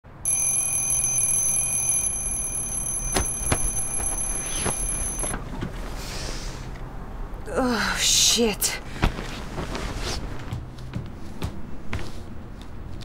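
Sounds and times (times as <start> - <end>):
alarm clock ringing: 0.1 - 5.4.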